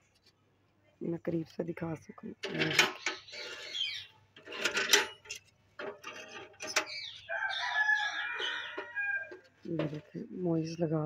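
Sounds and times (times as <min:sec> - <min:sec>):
rooster crowing: 0:07.3 - 0:09.4.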